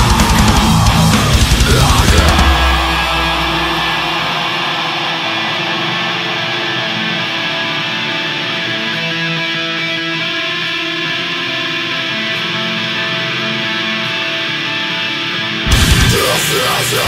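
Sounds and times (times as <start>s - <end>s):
bass: 0.0s - 4.4s, 15.6s - 17.0s
pounding drums: 0.0s - 7.6s
distorted electric guitar: 0.0s - 17.0s.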